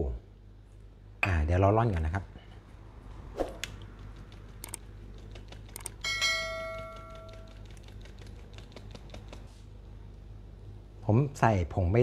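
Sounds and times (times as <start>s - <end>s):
ringing metal strike: 6.0s - 7.2s.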